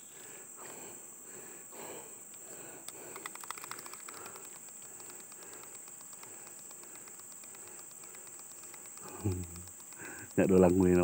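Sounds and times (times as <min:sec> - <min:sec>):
high-pitched insect drone: 0:01.7 - 0:11.0
soft clicks: 0:02.3 - 0:10.8.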